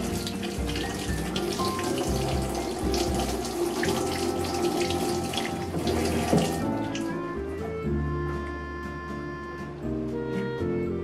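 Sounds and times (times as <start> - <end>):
tap water running into sink: 0.0 - 7.1
water splashing over hands: 0.0 - 7.1.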